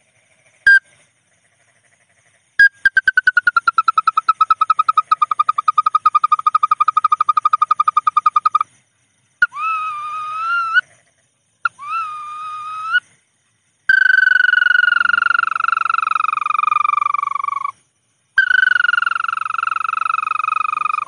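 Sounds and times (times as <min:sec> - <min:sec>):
rising bird calls: 0:09.4 - 0:13.1.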